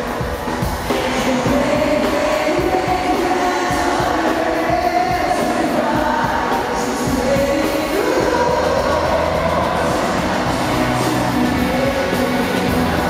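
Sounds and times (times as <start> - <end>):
live pop-rock band playing: 0.0 - 13.0.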